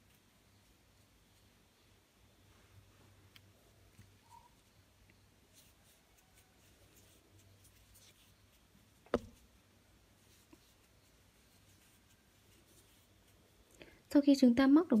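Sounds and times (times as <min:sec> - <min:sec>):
crochet hook scratching and ticking: 0:03.3 - 0:09.5.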